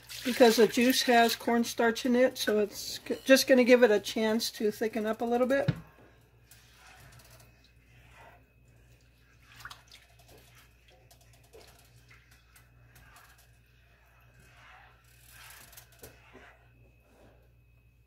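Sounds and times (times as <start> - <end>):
low steady hum: 0.0 - 18.0
spatula scraping skillet: 2.4 - 17.4
sauce simmering: 6.0 - 17.2.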